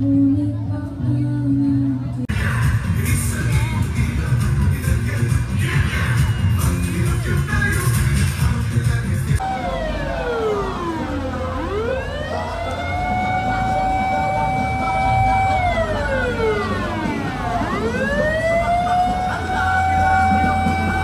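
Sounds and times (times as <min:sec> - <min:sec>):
fire truck siren wailing: 0:09.4 - 0:21.0.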